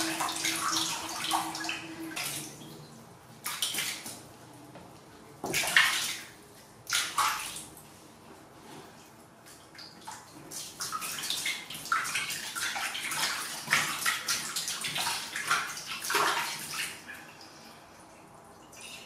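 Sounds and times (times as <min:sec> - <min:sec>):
water splashing in plastic basin: 0:00.0 - 0:04.3, 0:05.4 - 0:07.8, 0:09.5 - 0:17.4.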